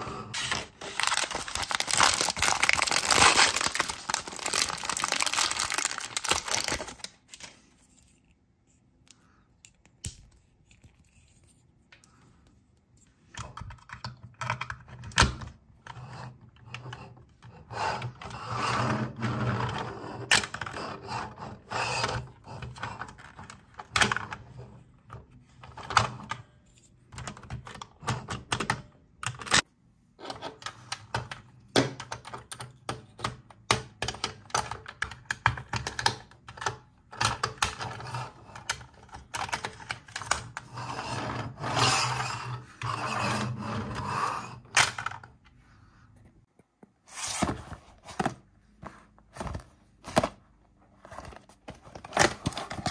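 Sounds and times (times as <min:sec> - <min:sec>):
paper wrapping crinkling: 0:00.4 - 0:07.8.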